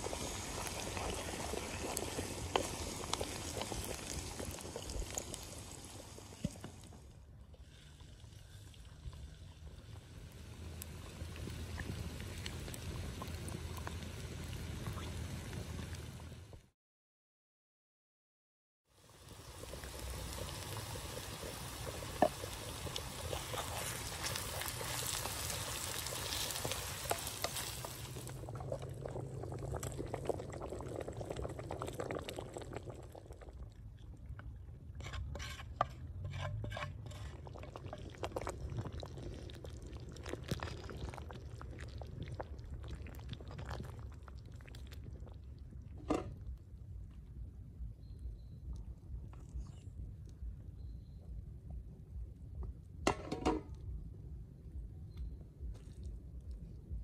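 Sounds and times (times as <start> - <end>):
onions sizzling in a frying pan: 19.0 - 28.4
wooden spoon scraping: 35.0 - 37.8.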